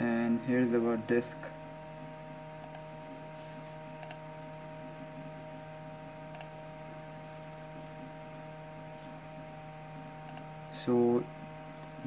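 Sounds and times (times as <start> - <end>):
desktop computer hum: 0.0 - 12.0
mouse clicks: 4.0 - 4.2, 10.2 - 10.5.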